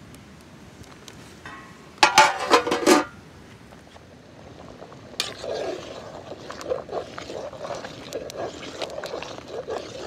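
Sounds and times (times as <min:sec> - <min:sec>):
spoon sloshing water: 0:05.2 - 0:10.0.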